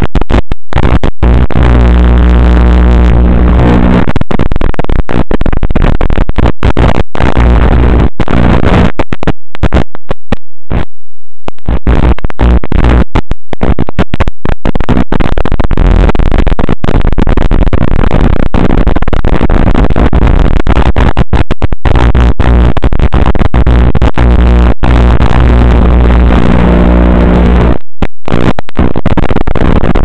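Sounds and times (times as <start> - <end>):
low buzz: 0.0 - 5.3, 6.4 - 14.4, 23.6 - 28.5
loud harsh static: 0.0 - 30.0.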